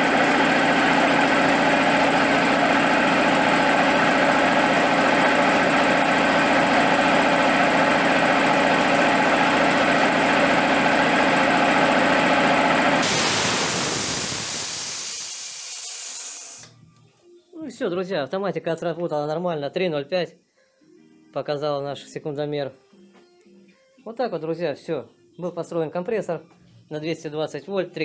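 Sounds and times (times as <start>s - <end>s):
air compressor running: 0.0s - 16.8s
released air hissing: 13.0s - 16.8s.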